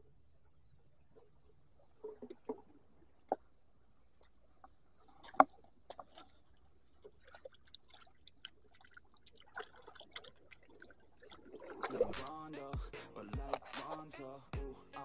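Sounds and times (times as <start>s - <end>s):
water trickling among rocks: 1.8s - 12.2s.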